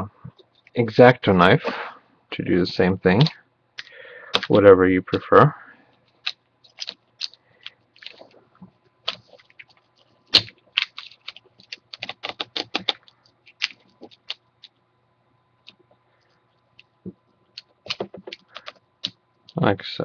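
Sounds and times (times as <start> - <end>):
hands picking at adhesive tape: 6.1 - 8.4, 9.0 - 14.8, 17.5 - 19.6.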